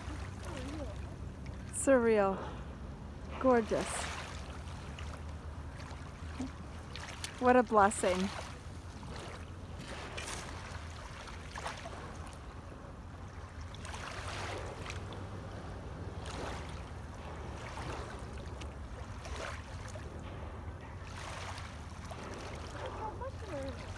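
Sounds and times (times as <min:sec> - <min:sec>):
waves lapping on pebble shore: 0:03.4 - 0:12.4, 0:13.8 - 0:15.3, 0:16.2 - 0:20.2, 0:21.1 - 0:23.9.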